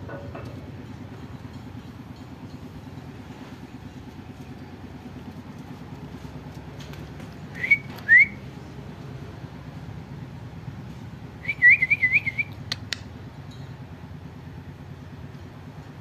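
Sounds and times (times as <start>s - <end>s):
short upward whistles: 7.5s - 8.4s, 11.4s - 12.8s.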